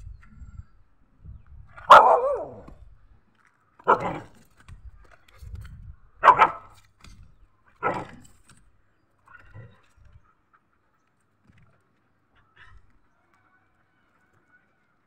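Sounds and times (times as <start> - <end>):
dog barking: 1.8 - 2.7, 3.9 - 4.3, 6.2 - 6.7, 7.8 - 8.2.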